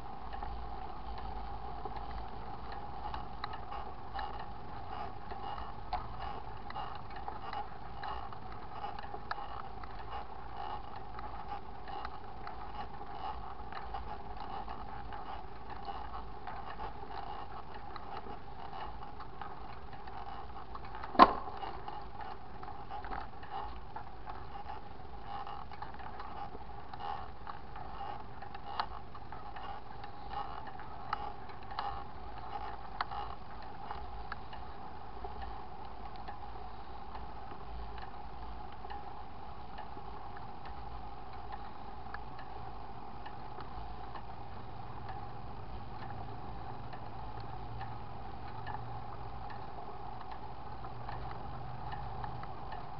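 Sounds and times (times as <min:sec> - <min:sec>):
bicycle chain and gears whirring: 0:00.0 - 0:52.9
small ticks: 0:00.0 - 0:52.9
sharp loud click: 0:21.1 - 0:21.5.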